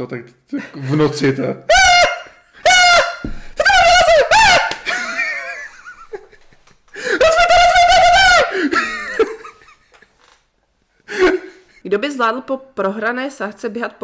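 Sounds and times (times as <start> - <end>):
woman and man laughing: 3.6 - 10.1.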